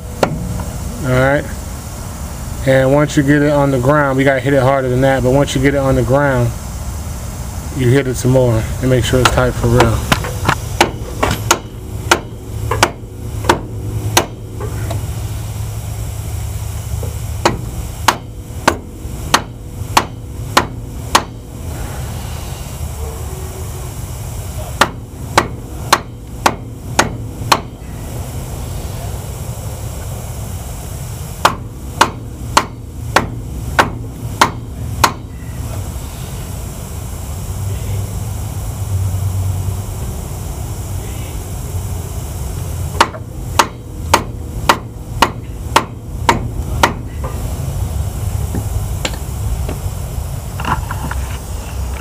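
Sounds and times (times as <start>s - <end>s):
hammer knocking on metal spinner: 9.2s - 14.8s, 24.8s - 27.8s, 31.4s - 35.3s, 43.0s - 47.4s.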